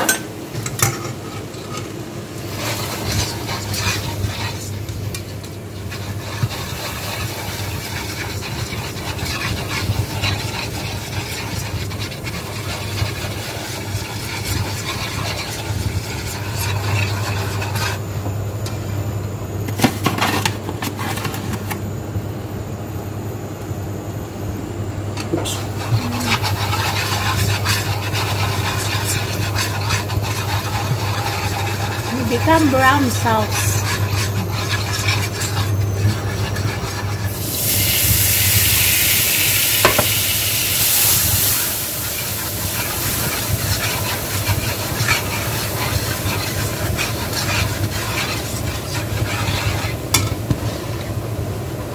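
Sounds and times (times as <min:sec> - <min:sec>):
steady low hum: 0:00.0 - 0:38.2
whisk scraping frying pan: 0:00.9 - 0:18.0, 0:25.4 - 0:51.9.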